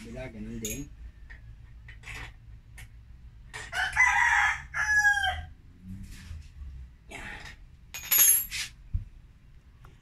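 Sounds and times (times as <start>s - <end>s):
wrench clinking: 0.6s - 1.0s, 7.9s - 8.7s
rooster crowing: 3.7s - 5.6s.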